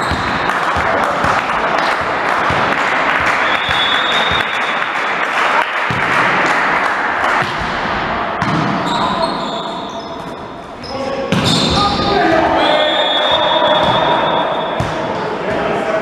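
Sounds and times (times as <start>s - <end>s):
clapping in echoing hall: 0.0s - 7.7s
referee's whistle blowing: 3.4s - 4.8s, 8.8s - 10.2s, 10.8s - 14.8s.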